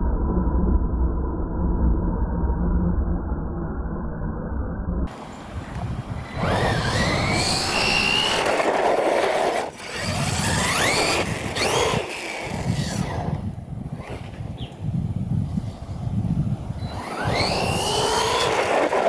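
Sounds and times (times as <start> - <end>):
drivetrain and tyre noise: 5.1 - 19.0
electric motor whining: 5.7 - 14.8, 16.6 - 19.0.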